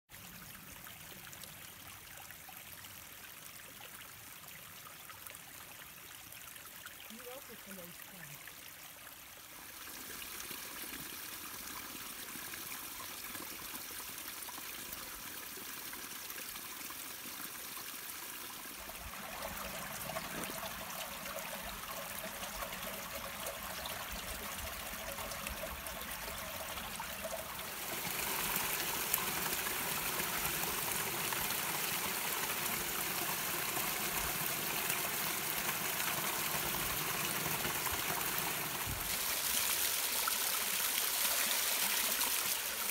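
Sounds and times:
brook trickling over stones: 0.1 - 42.9
water spilling over cascade: 6.9 - 42.9.

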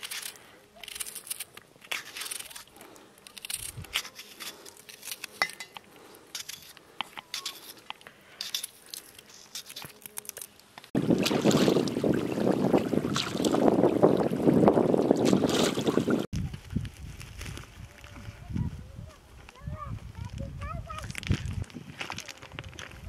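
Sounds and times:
wind buffeting microphone: 11.0 - 23.0.

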